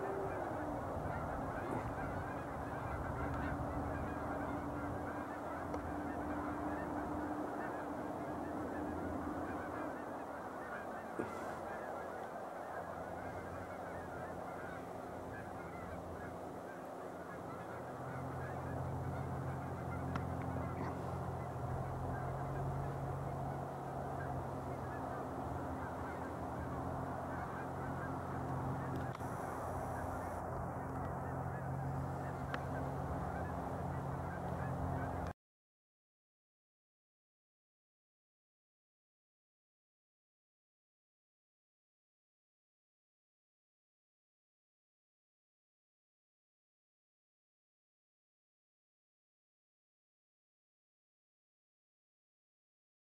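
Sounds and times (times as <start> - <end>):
geese honking: 0.0 - 35.3.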